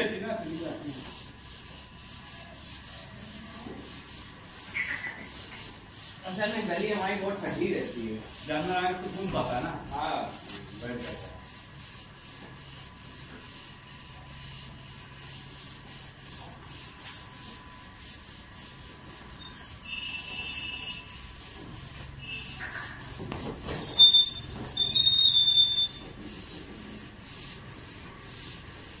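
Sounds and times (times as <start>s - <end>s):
loud high chirps: 23.8s - 25.9s.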